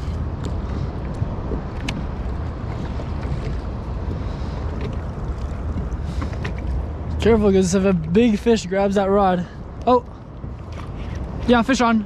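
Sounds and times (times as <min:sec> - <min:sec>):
water lapping against hull: 0:00.0 - 0:12.0
wind buffeting microphone: 0:00.0 - 0:12.0.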